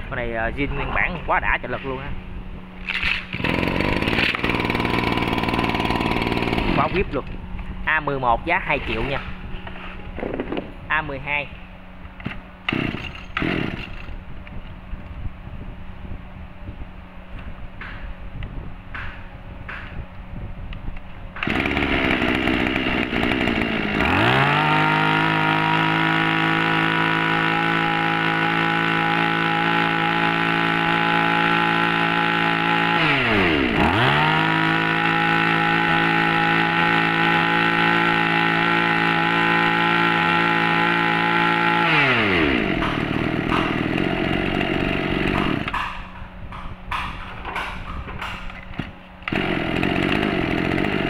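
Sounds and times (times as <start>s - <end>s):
brushcutter engine revving: 2.9s - 7.3s, 12.7s - 14.1s, 21.4s - 45.8s, 49.2s - 51.0s.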